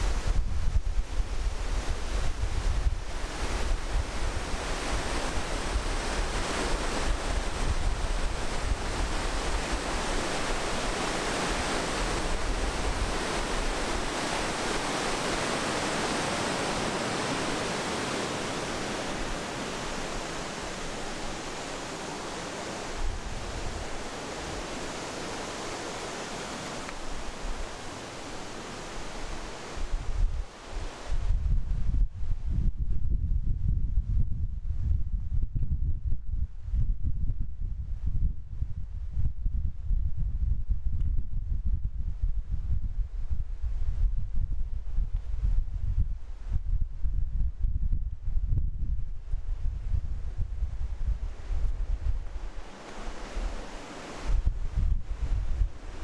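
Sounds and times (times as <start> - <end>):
wind buffeting microphone: 0.0 - 56.0
white-water rapids rushing: 3.2 - 31.0, 52.5 - 54.3.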